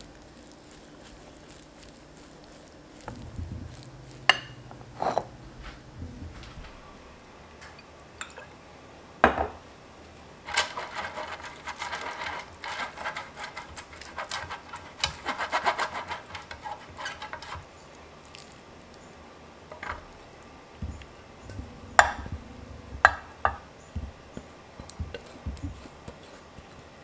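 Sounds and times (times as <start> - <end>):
brush scratching on metal pan: 0.0 - 6.0, 10.5 - 17.8, 20.8 - 27.0.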